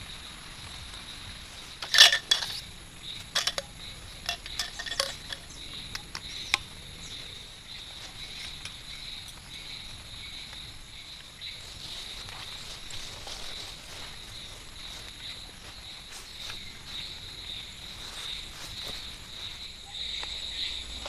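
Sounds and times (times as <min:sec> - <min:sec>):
insect chorus: 0:00.0 - 0:21.0
tarp pole sections clicking: 0:01.8 - 0:06.7.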